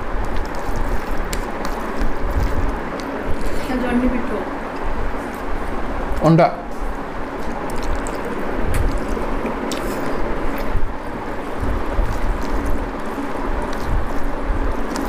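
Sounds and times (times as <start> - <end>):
food mixed by hand: 0.0 - 15.0
chewing: 0.1 - 3.6, 7.2 - 15.0.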